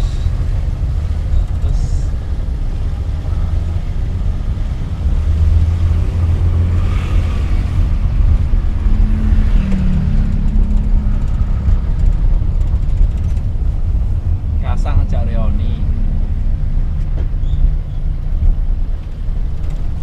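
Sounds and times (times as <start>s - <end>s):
road noise: 0.0s - 20.0s
small engine droning in cab: 0.0s - 20.0s.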